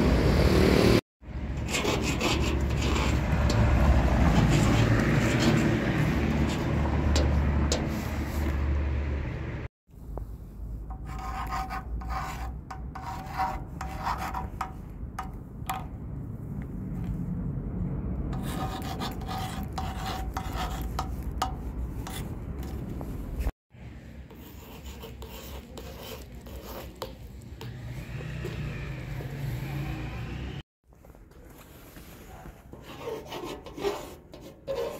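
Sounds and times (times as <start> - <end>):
pen scratching on stone: 1.6 - 3.6, 10.9 - 15.8, 18.3 - 22.8, 24.3 - 27.3, 32.8 - 34.9
pen tip scratching on metal: 18.4 - 22.7, 24.3 - 27.3.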